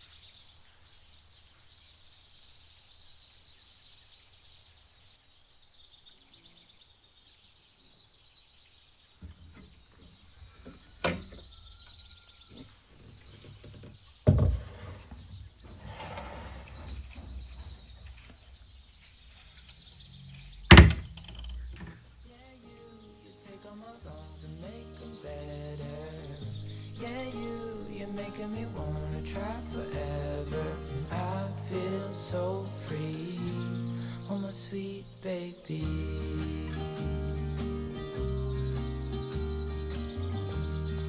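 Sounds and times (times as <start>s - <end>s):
birds chirping faintly: 0.0s - 41.0s
cupboard door shutting: 20.7s - 21.2s.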